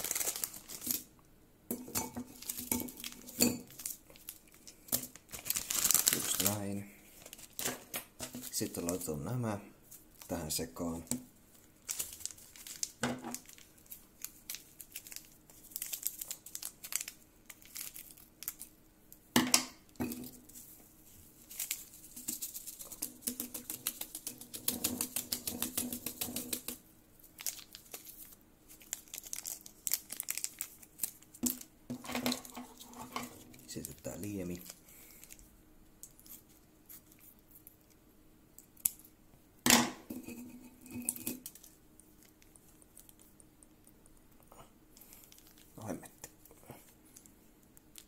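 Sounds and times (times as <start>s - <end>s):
plastic sachets crinkling: 0.0s - 1.1s, 2.3s - 9.2s, 9.9s - 18.8s, 21.3s - 26.2s, 27.2s - 38.0s, 41.4s - 44.3s, 45.0s - 48.0s
sachet tearing: 0.0s - 1.1s, 2.4s - 9.1s, 11.8s - 18.7s, 21.4s - 23.1s, 27.2s - 31.7s, 45.0s - 45.8s
seasoning shaken onto noodles: 21.5s - 26.8s.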